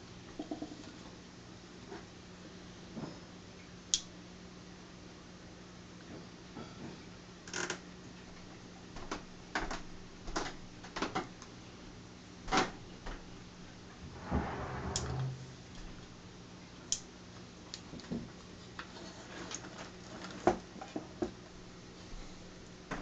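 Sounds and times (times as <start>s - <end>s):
low hum: 13.9s - 16.2s
brief rustling scrape: 14.0s - 15.6s.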